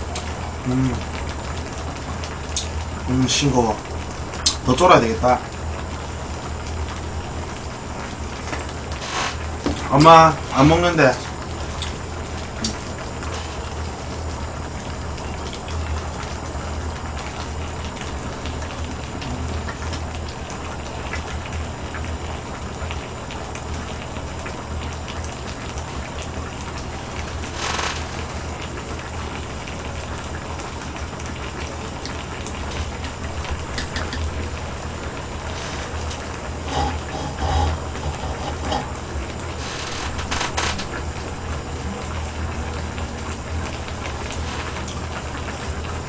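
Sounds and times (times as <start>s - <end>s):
stew bubbling in a pot: 0.0s - 46.0s
low hum: 32.6s - 45.8s.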